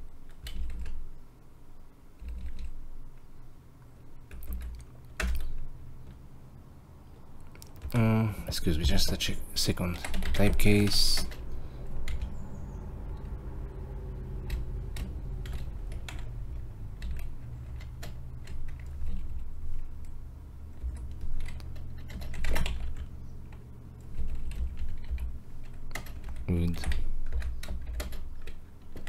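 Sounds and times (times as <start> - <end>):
low steady hum: 0.0 - 29.0
typing on computer keyboard: 0.2 - 1.1, 2.2 - 2.8, 4.2 - 6.2, 9.9 - 11.4, 12.0 - 12.4, 14.2 - 29.0.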